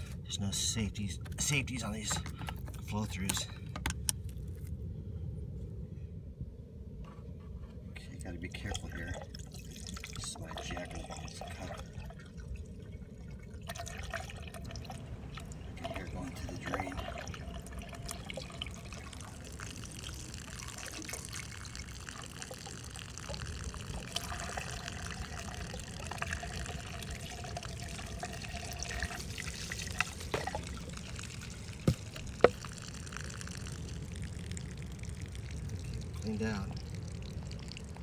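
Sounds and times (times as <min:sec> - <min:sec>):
water trickling and splashing: 0:08.3 - 0:38.0.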